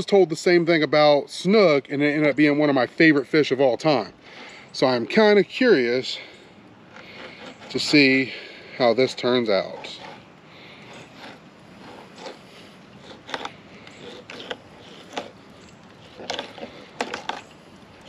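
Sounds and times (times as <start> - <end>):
steady background hiss: 0.0 - 18.0
knife scraping fish fillets: 6.9 - 8.4, 9.0 - 17.4.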